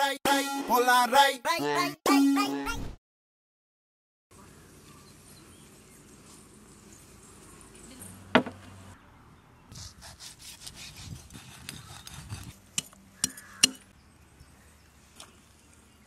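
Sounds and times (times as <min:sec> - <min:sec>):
blade scraping fish skin: 0:09.7 - 0:12.6.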